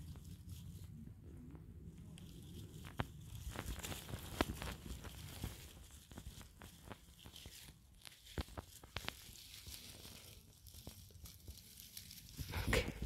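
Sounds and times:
rustling of grass and leaves: 0.0s - 13.0s
small snaps of twigs: 6.8s - 9.8s.

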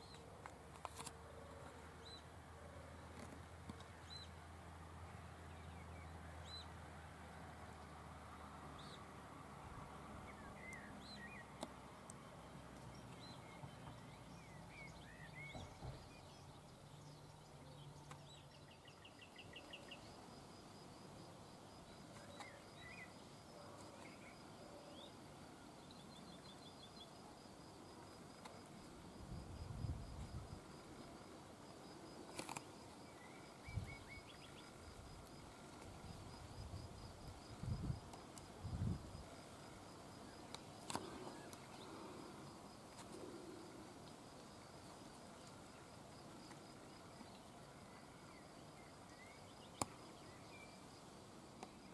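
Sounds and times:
small birds chirping: 10.2s - 20.2s, 32.0s - 36.6s.

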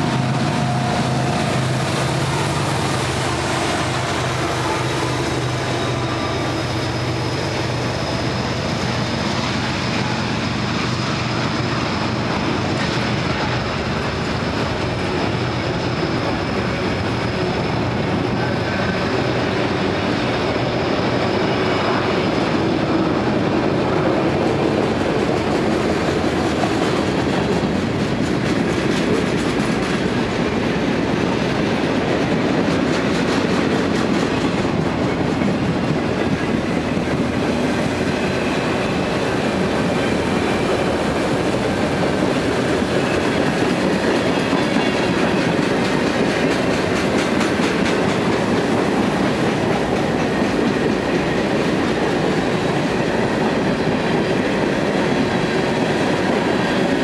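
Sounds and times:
freight train wheels rumbling: 0.0s - 57.0s.

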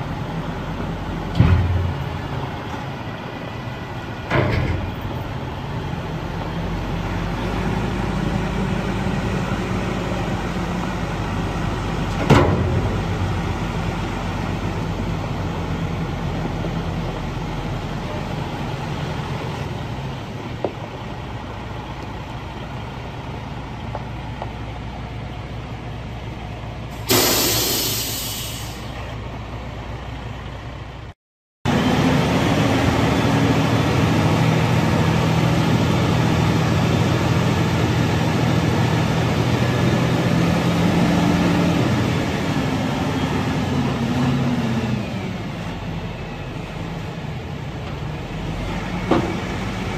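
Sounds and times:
diesel truck engine idling: 12.8s - 31.1s
air hiss: 27.0s - 29.0s.

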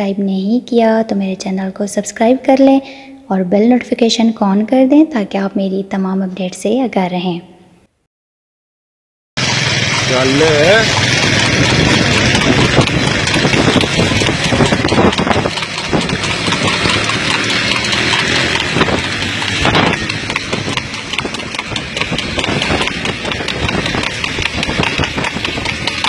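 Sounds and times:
horse trotting: 9.4s - 26.0s
road and wind noise: 9.4s - 26.0s
vehicle engine running: 9.4s - 26.0s.

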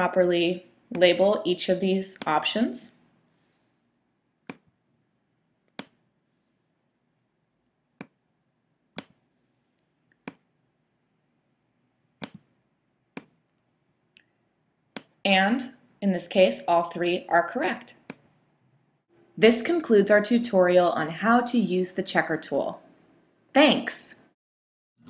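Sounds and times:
computer mouse clicking: 5.6s - 6.0s, 8.9s - 9.2s, 12.2s - 12.5s.

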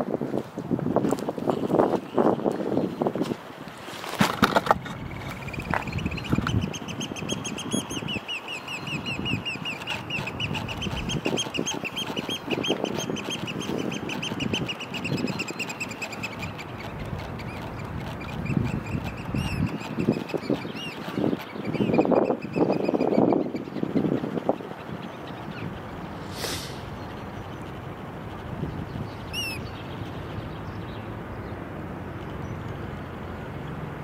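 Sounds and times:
wind rumble on microphone: 0.0s - 34.0s
oystercatchers shrill piping calls: 5.4s - 23.7s, 29.2s - 29.8s.

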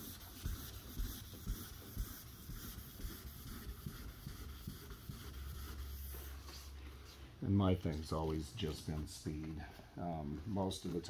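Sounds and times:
sanding block knocks: 0.0s - 6.6s
sandpaper swishing on paint: 0.0s - 9.7s.

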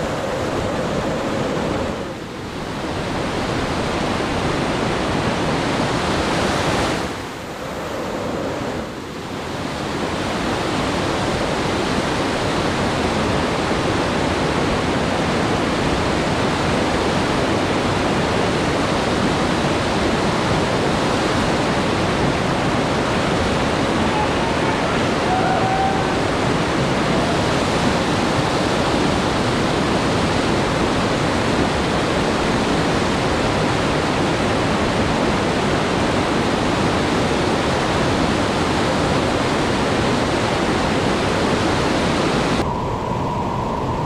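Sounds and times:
whitewater rushing over boulders: 9.3s - 42.6s.

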